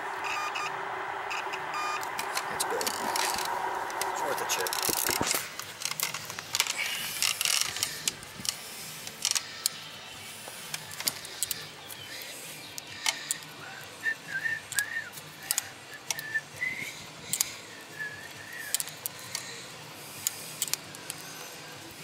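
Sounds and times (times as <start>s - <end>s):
person whistling: 14.0s - 15.2s, 16.0s - 17.0s, 17.7s - 18.7s.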